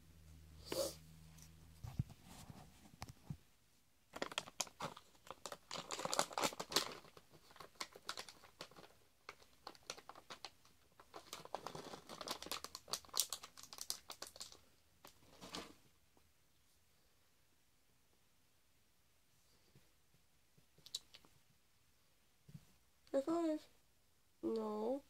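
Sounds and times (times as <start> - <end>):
crinkling and rustling material: 4.1 - 16.0.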